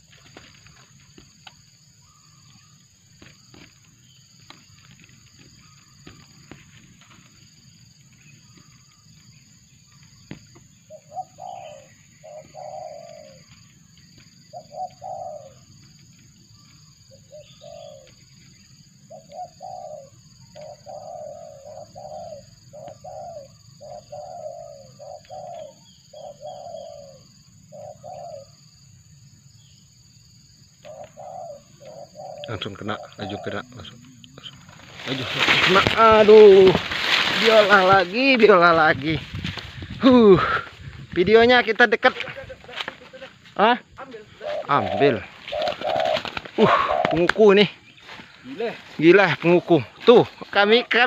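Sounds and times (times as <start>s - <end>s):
dove cooing: 10.2s - 28.7s, 30.8s - 38.3s, 44.0s - 48.7s.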